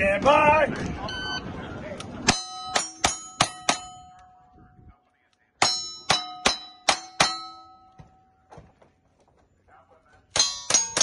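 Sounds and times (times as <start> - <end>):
steel plate ringing: 2.3 - 4.2, 5.6 - 8.3, 10.4 - 11.0.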